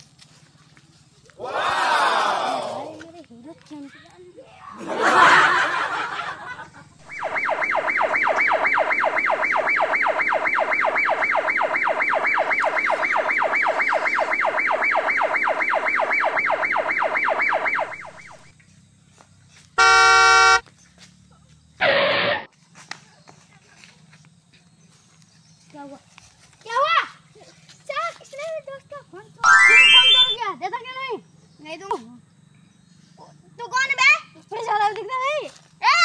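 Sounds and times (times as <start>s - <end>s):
electronic siren warbling fast: 7.0s - 18.5s, 29.4s - 30.4s
short horn-like beep: 19.8s - 20.6s.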